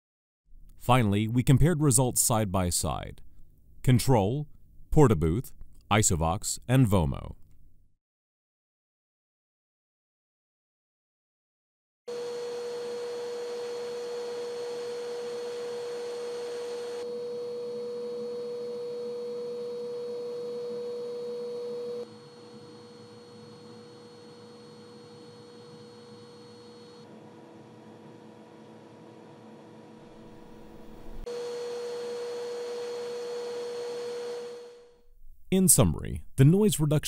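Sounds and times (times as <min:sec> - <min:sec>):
vacuum cleaner running: 0:12.1 - 0:35.0.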